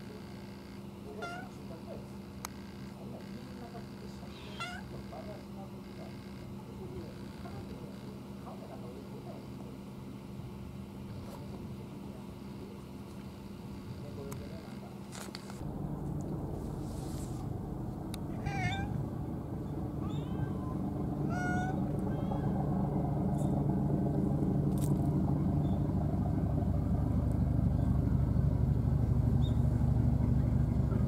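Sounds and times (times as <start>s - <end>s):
low engine hum: 1.0s - 31.0s
cat meowing: 1.2s - 1.6s, 4.2s - 5.0s, 18.3s - 19.0s, 20.0s - 22.6s.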